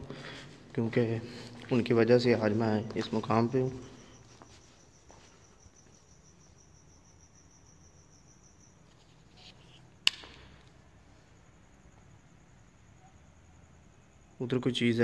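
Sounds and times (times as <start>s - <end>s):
crickets chirping: 0.0s - 15.0s
sharp click: 10.0s - 10.7s.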